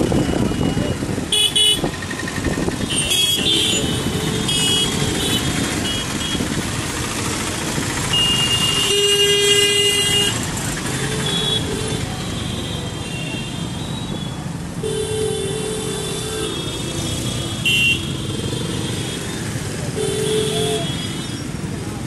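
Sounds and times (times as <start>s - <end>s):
traffic engines rumbling: 0.0s - 22.0s
car horn toots: 2.8s - 6.4s, 17.6s - 19.0s.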